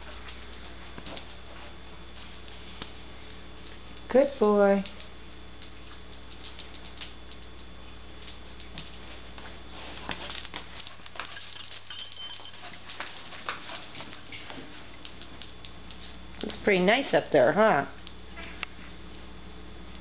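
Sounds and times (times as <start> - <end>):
dog moving with clicks and taps: 0.0 - 1.4, 4.7 - 16.7
steady low hum: 0.0 - 20.0.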